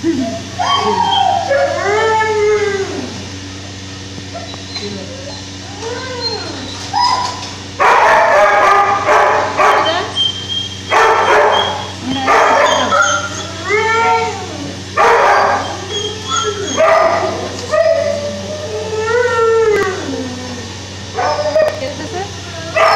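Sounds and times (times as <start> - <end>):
dogs yelping and whining: 0.0 - 3.3, 4.3 - 22.9
dogs barking: 0.2 - 2.0, 4.3 - 18.7, 20.9 - 21.9, 22.6 - 22.9.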